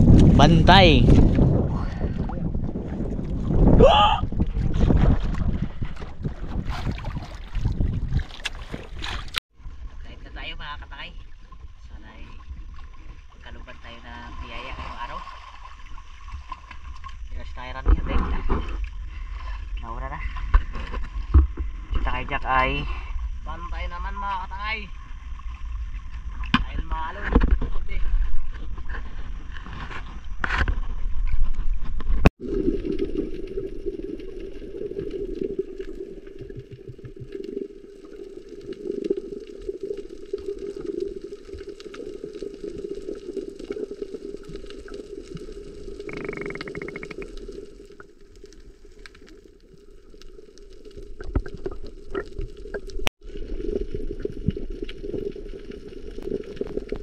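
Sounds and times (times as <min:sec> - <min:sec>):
boat low rumble: 0:00.0 - 0:30.4
muffled underwater water rush: 0:00.0 - 0:57.0
bubbling water: 0:01.4 - 0:09.4, 0:32.4 - 0:57.0
underwater clicks: 0:46.0 - 0:49.4.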